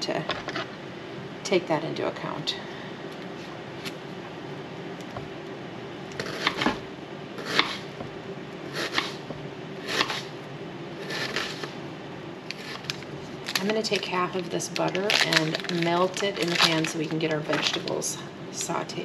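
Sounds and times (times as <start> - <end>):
knife cutting on plastic board: 6.2 - 6.8, 7.4 - 7.9, 8.8 - 10.3.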